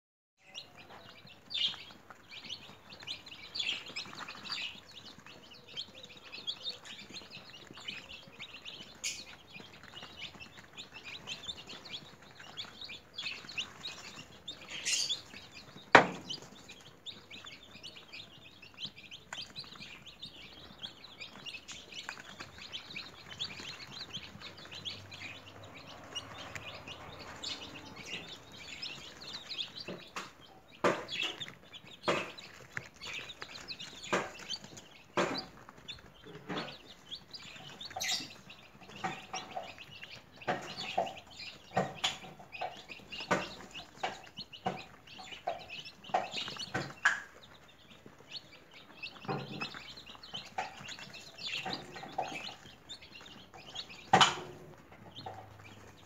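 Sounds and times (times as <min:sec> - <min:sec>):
chicks peeping: 0:00.4 - 0:56.0.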